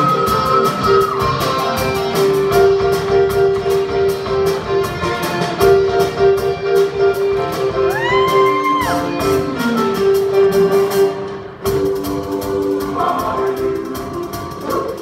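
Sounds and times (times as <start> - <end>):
band playing: 0.0 - 15.0
drum kit beat: 0.0 - 15.0
choir singing: 10.7 - 15.0.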